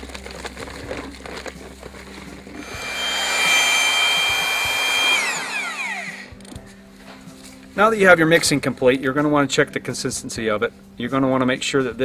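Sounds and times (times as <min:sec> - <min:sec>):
electric drill mixing: 0:02.6 - 0:06.6.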